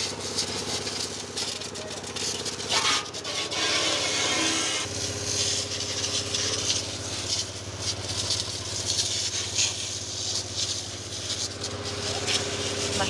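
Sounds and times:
pressure washer spraying metal: 0.0 - 13.0
steady machine hum: 0.0 - 13.0.

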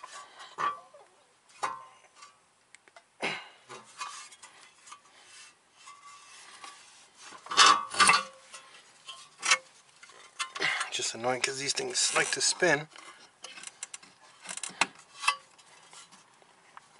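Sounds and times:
metal scraping: 3.7 - 10.6.

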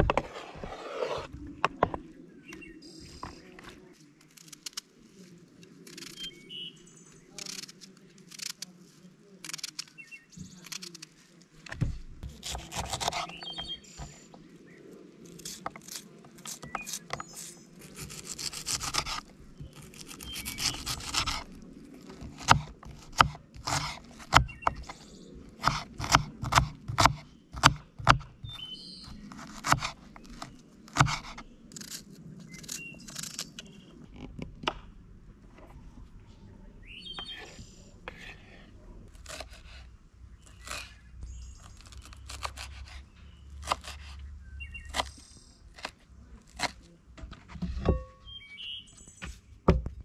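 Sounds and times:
utensils scraping and rubbing: 0.0 - 1.3.

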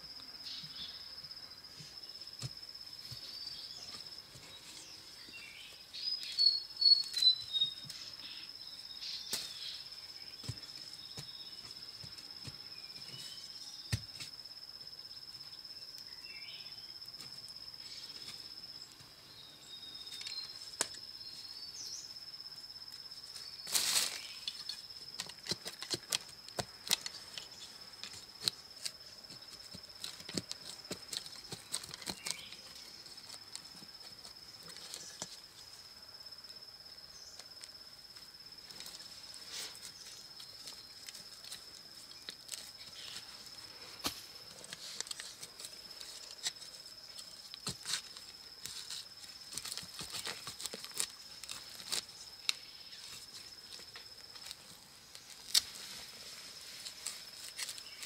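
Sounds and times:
hand tool digging in soil: 23.6 - 35.4, 38.7 - 58.0.

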